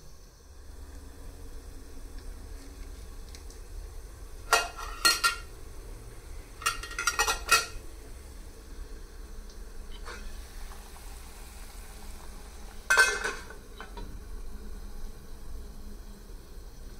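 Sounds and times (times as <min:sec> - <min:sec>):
metal lid clinking on container: 0:06.6 - 0:07.8, 0:12.9 - 0:13.5.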